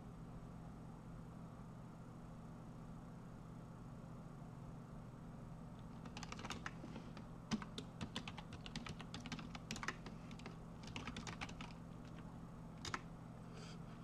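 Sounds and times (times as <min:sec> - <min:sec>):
faint low hum: 0:00.0 - 0:14.0
keyboard key clicks: 0:06.0 - 0:12.2.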